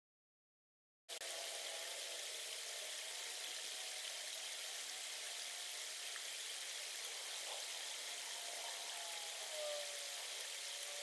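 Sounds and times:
outdoor background hiss: 1.1 - 11.0
faint wavering tones: 6.7 - 11.0.

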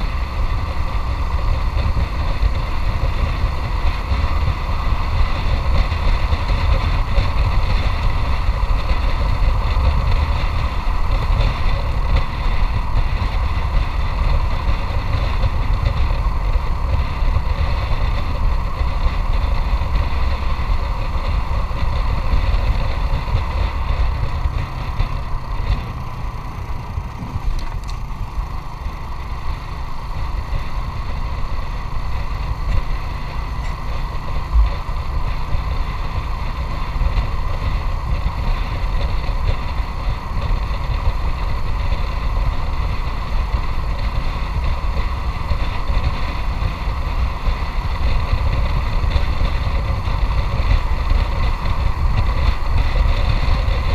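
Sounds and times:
motorcycle engine running: 0.0 - 53.9
wind and road noise: 0.0 - 53.9.

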